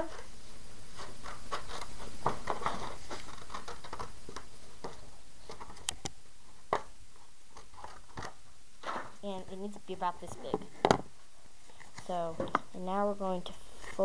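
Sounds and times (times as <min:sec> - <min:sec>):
paper crinkling and rustling: 0:00.9 - 0:05.9.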